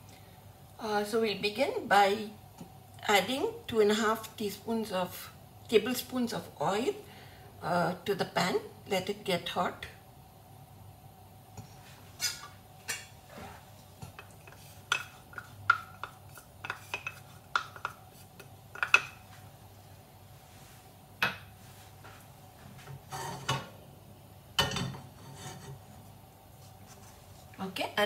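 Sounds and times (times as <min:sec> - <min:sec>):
faint steady hum: 0:00.0 - 0:28.0
kitchenware clinking and knocking: 0:18.8 - 0:19.2, 0:24.6 - 0:25.7.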